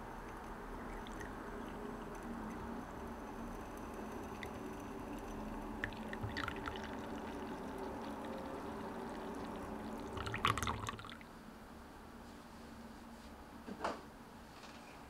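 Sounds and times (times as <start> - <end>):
tea pouring through strainer: 0.2 - 11.3
liquid splashing: 5.8 - 11.2.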